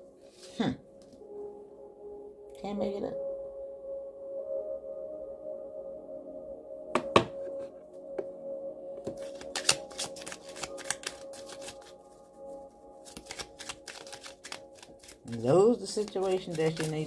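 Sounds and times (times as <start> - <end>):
soft ambient music: 0.0 - 17.0
cards riffling: 9.1 - 12.0, 13.0 - 17.0.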